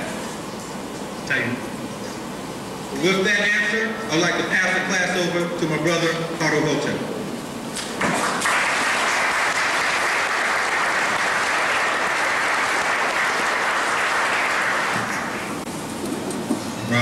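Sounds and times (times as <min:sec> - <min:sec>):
audience clapping: 0:07.8 - 0:15.6.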